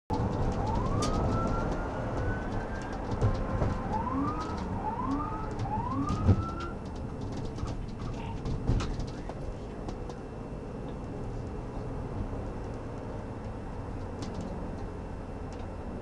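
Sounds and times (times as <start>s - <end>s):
police car siren: 0.1s - 7.3s
road noise: 0.1s - 16.0s.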